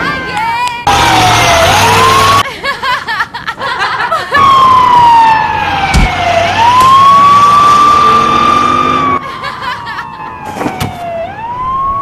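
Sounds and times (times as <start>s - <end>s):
fire truck siren wailing: 0.9s - 2.4s, 4.3s - 12.0s
person laughing: 2.4s - 4.5s, 9.2s - 10.4s.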